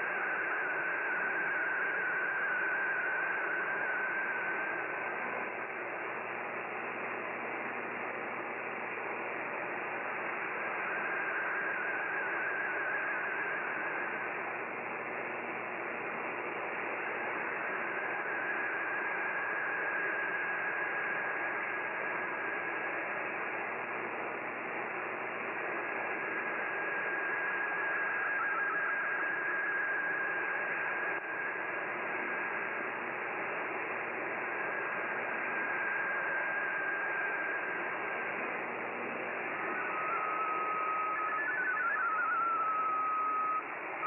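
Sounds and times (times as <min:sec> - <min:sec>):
radio static hiss: 0:00.0 - 0:44.0
faint thin whistle: 0:39.6 - 0:43.7.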